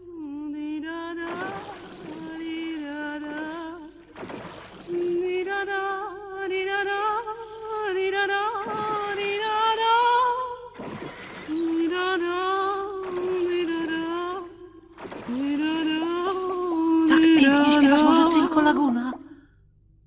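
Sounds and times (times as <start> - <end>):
woman singing long notes: 4.9 - 10.6, 11.5 - 19.4
singer breathing: 19.2 - 19.7.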